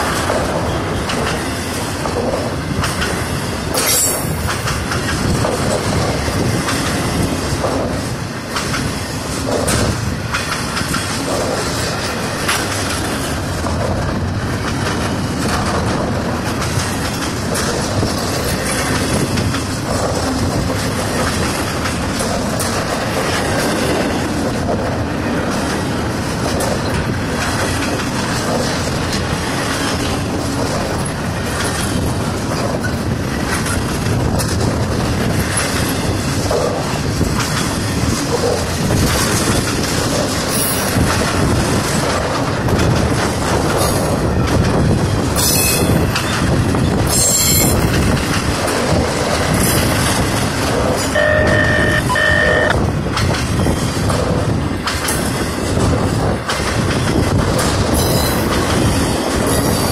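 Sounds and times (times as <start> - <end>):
freight train rumbling and clattering: 0.0 - 59.9
high-pitched wheel squeals: 51.1 - 52.7.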